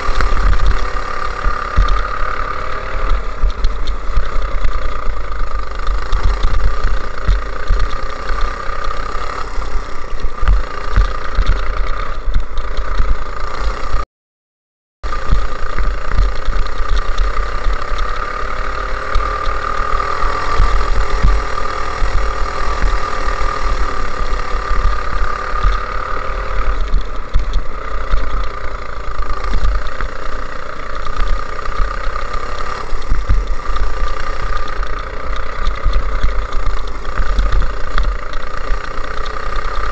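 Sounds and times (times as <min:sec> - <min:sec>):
go-kart engine running flat out: 0:00.0 - 0:14.0, 0:15.0 - 0:39.9
wind rumble on microphone: 0:19.1 - 0:39.9.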